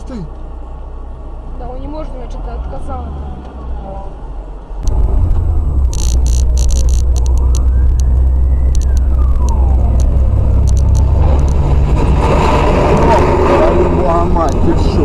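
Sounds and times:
vehicle rumbling on road: 0.0 - 15.0
emergency siren wailing: 3.1 - 15.0
sharp clicks: 4.8 - 11.7.

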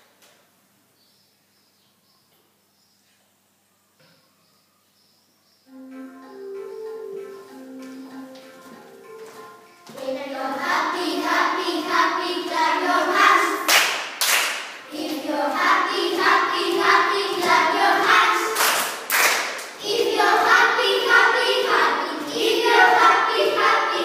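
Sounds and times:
children singing together: 5.7 - 13.9, 14.8 - 24.0
hand clapping: 13.7 - 15.2, 18.5 - 19.8.

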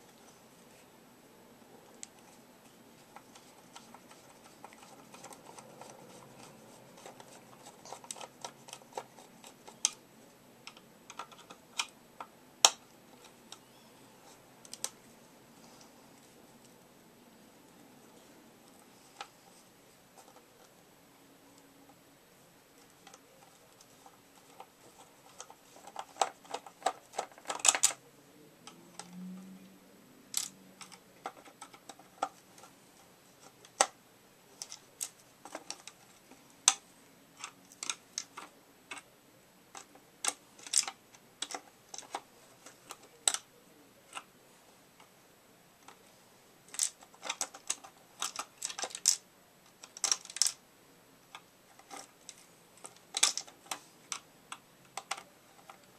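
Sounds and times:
hard plastic parts clicking: 3.0 - 10.0, 10.6 - 15.0, 22.8 - 28.0, 30.3 - 32.8, 34.6 - 39.1, 39.7 - 44.3, 46.7 - 50.6, 51.2 - 55.9.

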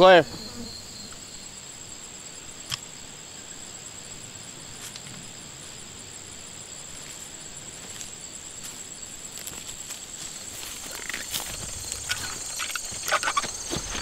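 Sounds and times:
crickets trilling: 0.0 - 14.0
boots walking through grass: 4.7 - 14.0.

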